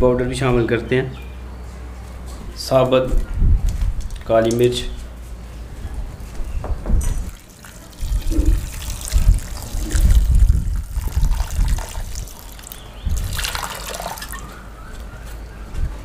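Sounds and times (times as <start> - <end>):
water pouring into pot: 7.3 - 14.4.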